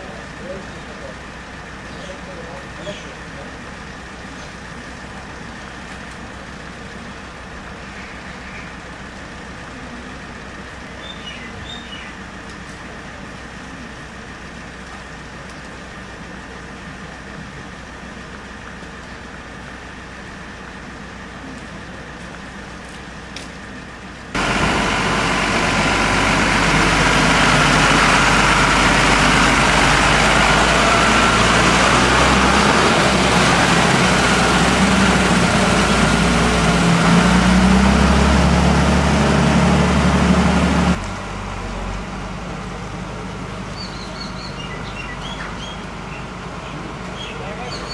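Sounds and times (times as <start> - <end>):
street background noise: 0.0 - 47.9
heavy vehicle engine revving: 8.7 - 47.9
faint bird chirps: 11.0 - 12.2, 43.8 - 46.3.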